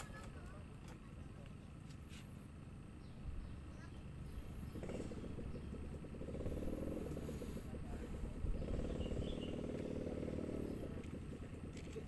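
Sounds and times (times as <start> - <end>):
small engine running: 3.6 - 12.0.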